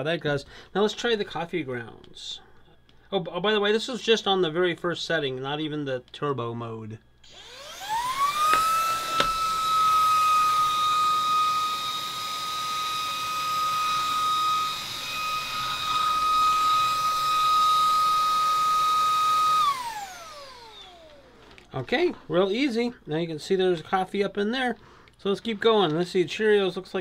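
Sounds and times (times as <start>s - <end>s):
handheld vacuum motor whining: 7.2s - 21.7s.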